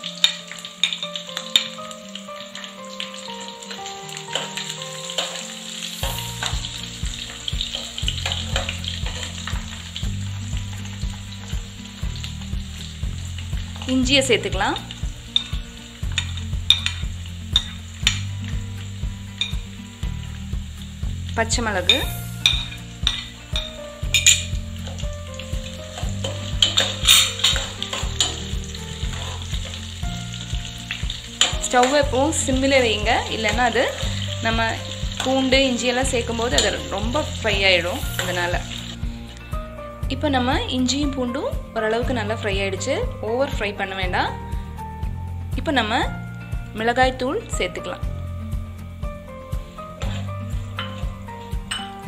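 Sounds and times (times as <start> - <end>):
garlic sizzling in hot oil: 0.0 - 52.0
soft background music with beat: 0.0 - 52.0
spoon clinking against metal pan: 16.2 - 18.2, 21.9 - 25.0, 26.0 - 28.5, 50.8 - 52.0
steel spoon clicking against pan: 26.2 - 28.5.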